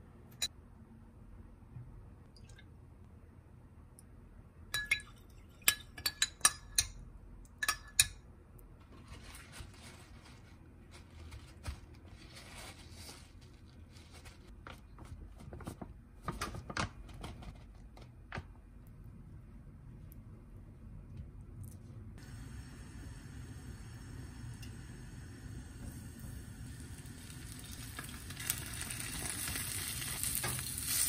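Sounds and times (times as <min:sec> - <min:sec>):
spoon clinking against glass bowl: 0:04.8 - 0:07.0, 0:07.6 - 0:08.2
paper towel rustling: 0:08.9 - 0:17.8.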